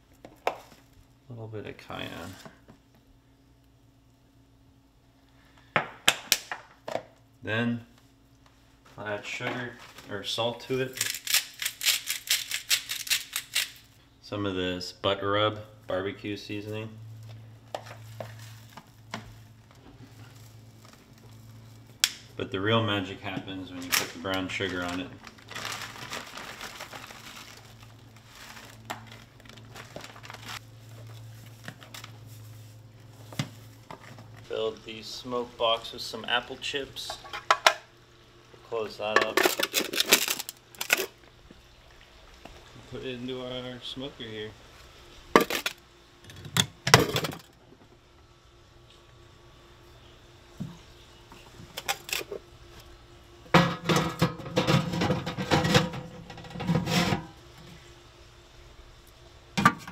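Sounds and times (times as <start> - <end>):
low steady hum: 0.0 - 59.9
sugar bag crinkling: 23.6 - 33.8, 39.3 - 41.2
metal box rattling and scraping: 53.6 - 57.3.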